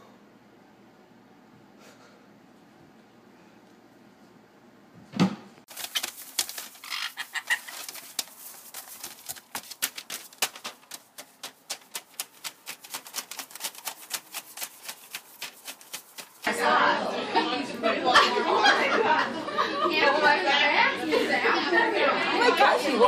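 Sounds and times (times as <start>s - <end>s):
thump: 5.1s - 5.5s
parrot hopping on newspaper: 5.7s - 16.5s.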